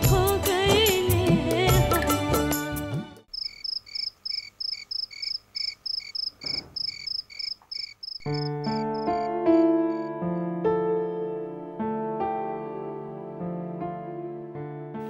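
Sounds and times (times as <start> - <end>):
soft keyboard music: 0.0 - 3.3, 8.2 - 15.0
cricket chirping: 3.3 - 10.2.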